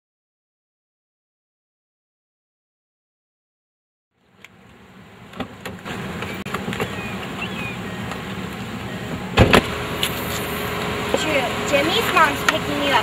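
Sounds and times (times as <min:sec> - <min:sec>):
car engine running: 0:04.2 - 0:13.0
loud thump: 0:09.4 - 0:10.2.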